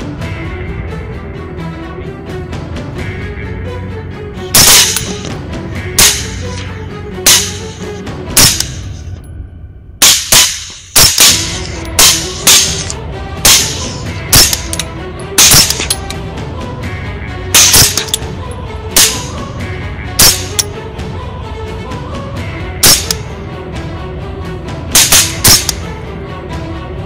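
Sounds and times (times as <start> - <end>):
background music: 0.0 - 27.0
rifle shots: 4.6 - 5.3, 6.0 - 6.5, 7.3 - 7.8, 10.0 - 14.8, 15.4 - 16.1, 17.6 - 18.2, 20.2 - 20.7, 22.8 - 23.2, 25.0 - 25.8.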